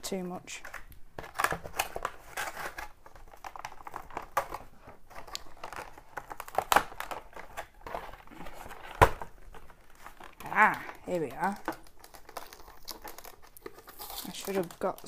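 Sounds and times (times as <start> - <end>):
plastic crinkling and crackling: 0.5 - 15.0
loud plastic crack: 0.8 - 10.5.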